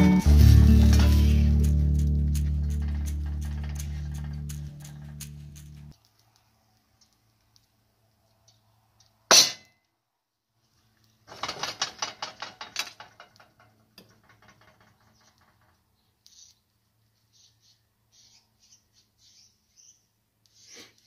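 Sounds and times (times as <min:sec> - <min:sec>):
rattling clicks and scrapes: 0:00.0 - 0:06.0, 0:11.3 - 0:16.1.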